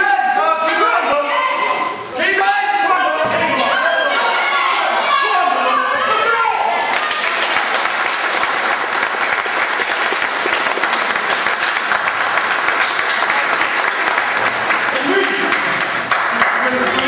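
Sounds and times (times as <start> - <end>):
crowd applauding: 6.9 - 17.0.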